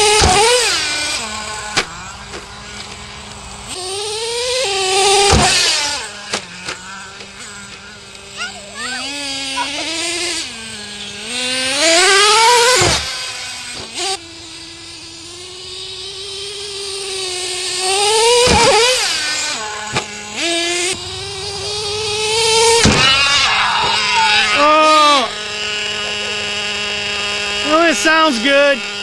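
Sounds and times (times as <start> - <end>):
small nitro engine revving: 0.0 - 29.0.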